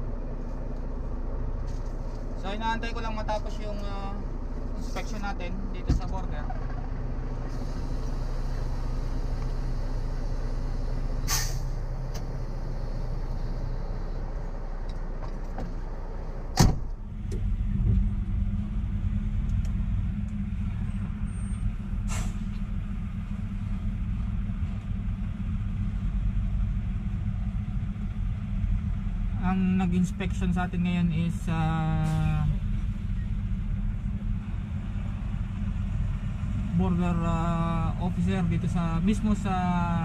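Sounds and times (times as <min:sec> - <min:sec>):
diesel truck engine idling: 0:00.0 - 0:40.0
truck cab door slamming: 0:16.5 - 0:17.0.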